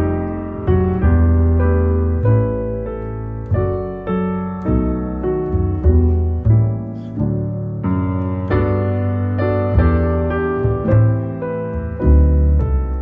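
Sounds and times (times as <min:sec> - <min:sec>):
background piano music: 0:00.0 - 0:13.0.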